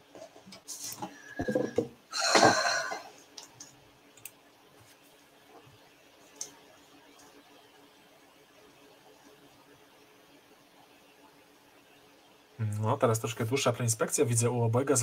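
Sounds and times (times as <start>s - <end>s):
plastic knocks: 1.4s - 2.6s.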